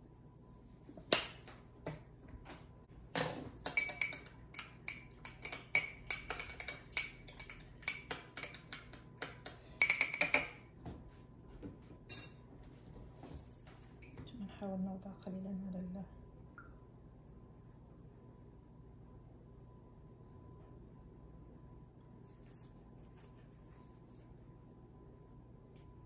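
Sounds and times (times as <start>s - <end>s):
metal utensil clinking on glass bowl: 3.6s - 8.9s, 12.1s - 12.4s.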